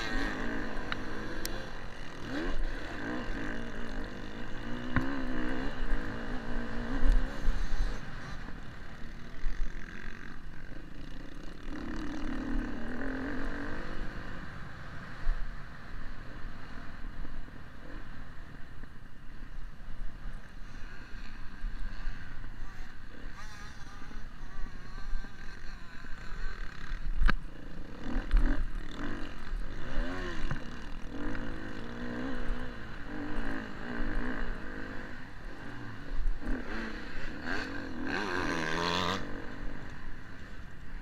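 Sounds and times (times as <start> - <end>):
dirt bike engine revving: 0.0 - 18.7, 20.3 - 41.0.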